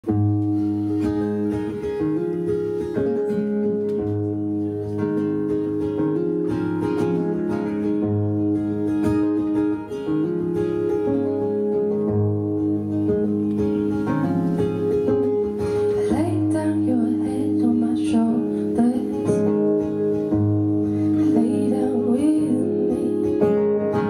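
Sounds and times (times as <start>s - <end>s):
acoustic guitar strummed chords: 0.0s - 24.0s.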